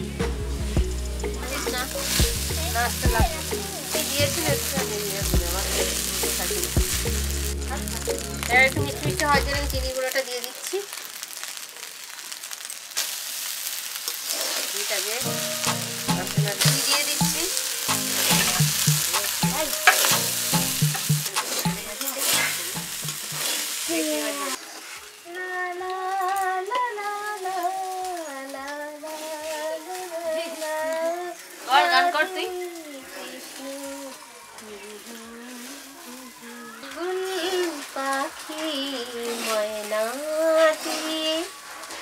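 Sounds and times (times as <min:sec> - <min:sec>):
melodic tune: 0:00.0 - 0:09.9, 0:15.2 - 0:23.5
fried rice sizzling: 0:00.0 - 0:42.0
metal spatula scraping pan: 0:15.2 - 0:23.9.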